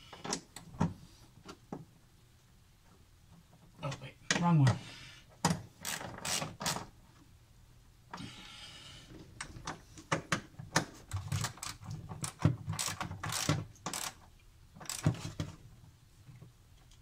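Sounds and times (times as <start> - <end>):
socket ratchet clicking: 11.4 - 14.2, 14.8 - 15.2.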